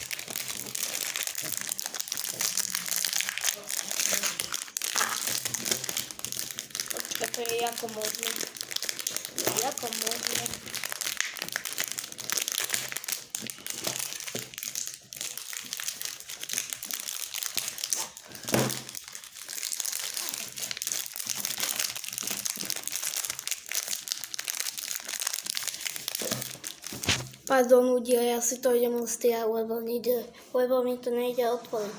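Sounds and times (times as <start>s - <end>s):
plastic wrapper crinkling: 0.0s - 27.5s.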